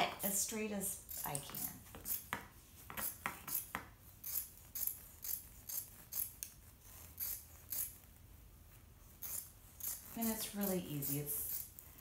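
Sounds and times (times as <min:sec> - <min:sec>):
scissors snipping filter material: 0:09.2 - 0:12.0.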